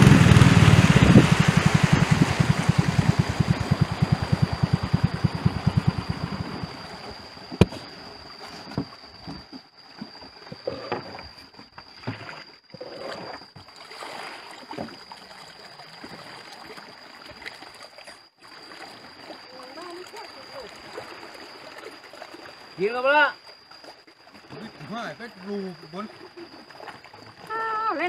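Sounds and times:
high-pitched whine: 0:00.0 - 0:07.8
boat motor throbbing: 0:00.0 - 0:08.0
paddle splashing in water: 0:00.0 - 0:28.0.

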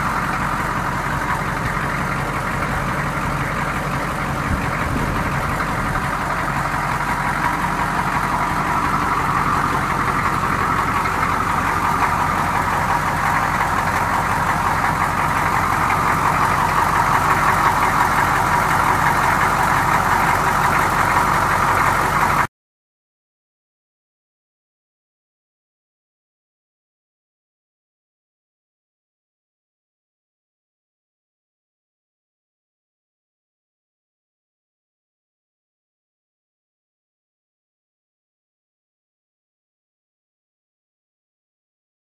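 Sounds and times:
diesel engine idling: 0:00.0 - 0:22.5.

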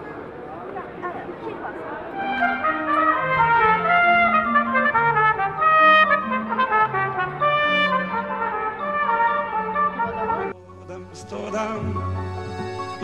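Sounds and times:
trumpet melody: 0:02.2 - 0:10.6.

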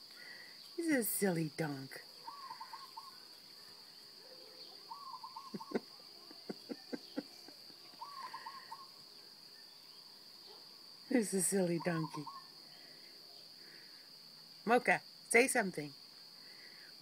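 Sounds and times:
high-pitched insect drone: 0:04.9 - 0:10.0.

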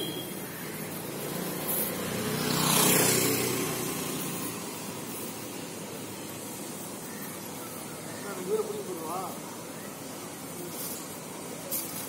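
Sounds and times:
welding hiss: 0:00.0 - 0:12.0
passing vehicle engine: 0:00.7 - 0:06.8.

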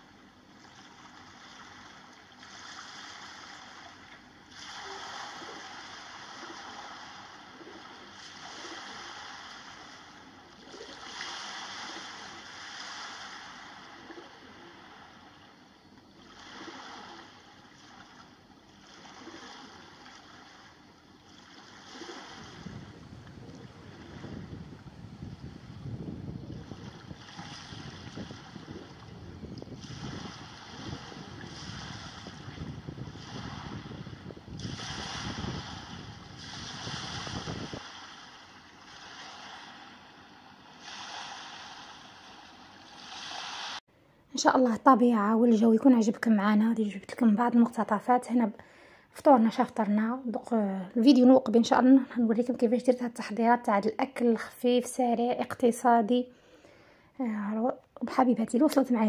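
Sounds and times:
surf washing onto sand: 0:21.6 - 0:40.1, 0:40.8 - 0:43.8
wind buffeting microphone: 0:22.0 - 0:38.2.

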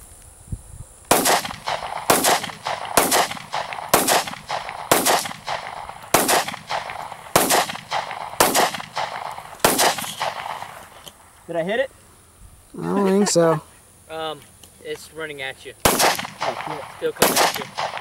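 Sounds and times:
gunshots with echo: 0:01.1 - 0:10.9, 0:15.9 - 0:18.0.

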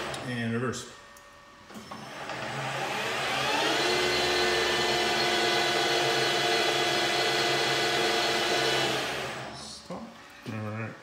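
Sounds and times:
lathe motor whine: 0:01.7 - 0:09.7.

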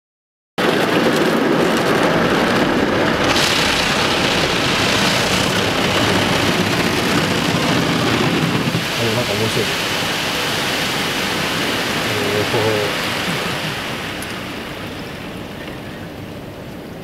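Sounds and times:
water spraying on car glass: 0:01.9 - 0:14.4.

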